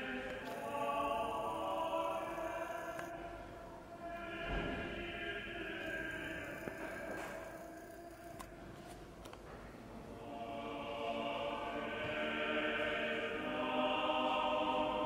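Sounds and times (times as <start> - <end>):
choir singing held chords: 0.0 - 8.6, 10.1 - 15.0.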